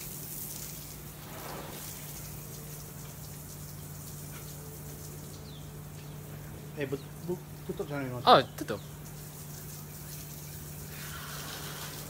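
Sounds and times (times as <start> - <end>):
low hum: 0.8 - 4.2.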